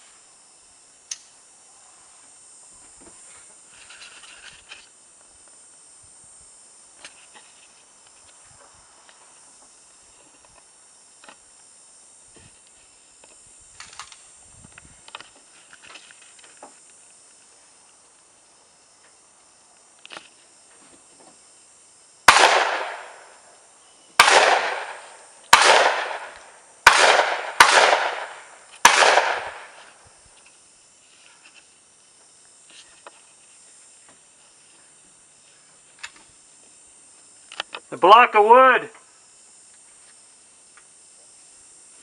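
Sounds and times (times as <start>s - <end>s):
rifle gunshots: 22.3s - 23.2s, 24.2s - 29.8s.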